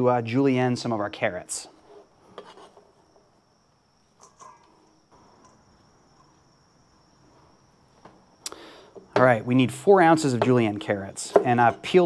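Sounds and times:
faint high-pitched whine: 0:00.0 - 0:12.0.

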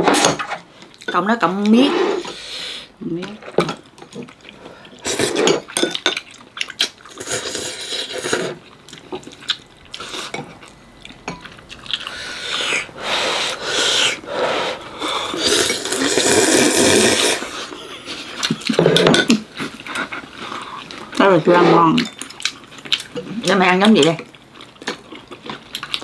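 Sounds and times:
chewing: 0:03.8 - 0:14.2, 0:14.8 - 0:26.0
slurping broth and noodles: 0:05.0 - 0:05.7, 0:07.1 - 0:08.6, 0:12.0 - 0:17.8.

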